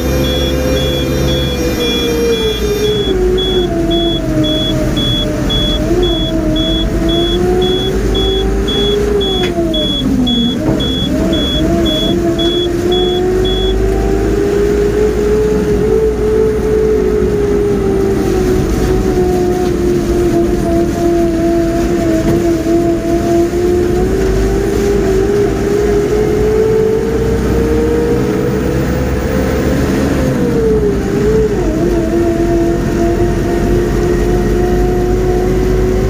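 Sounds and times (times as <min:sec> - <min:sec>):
electronic beeps: 0:00.0 - 0:13.8
crane engine running: 0:00.0 - 0:14.3.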